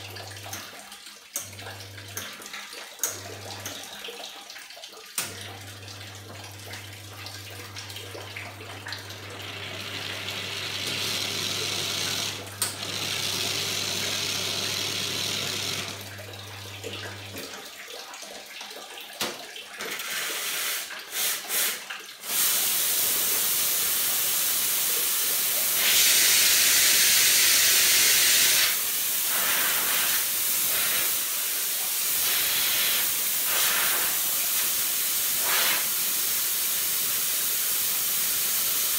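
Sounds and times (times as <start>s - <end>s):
espresso machine pump humming: 6.2s - 17.4s, 25.6s - 28.8s
steam wand hissing: 35.2s - 36.1s.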